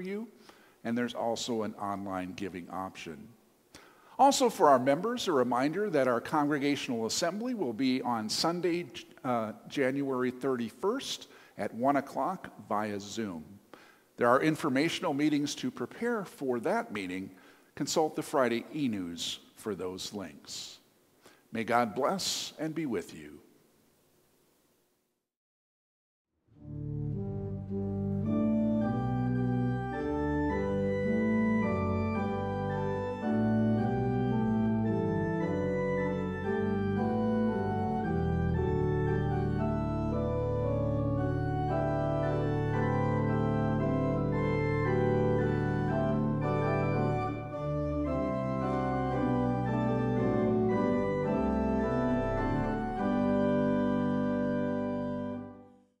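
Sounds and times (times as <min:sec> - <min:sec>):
organ playing sustained chords: 0:00.0 - 0:03.3, 0:04.2 - 0:13.4, 0:26.6 - 0:55.8.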